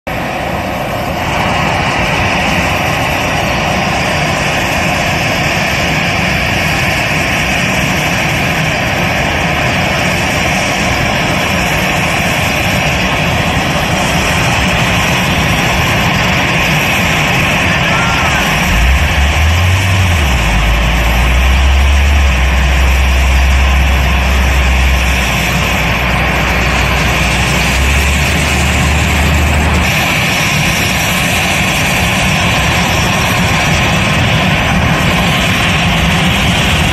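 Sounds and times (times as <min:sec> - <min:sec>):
jet engines running: 0:00.1 - 0:36.9
deep low hum: 0:17.4 - 0:30.4.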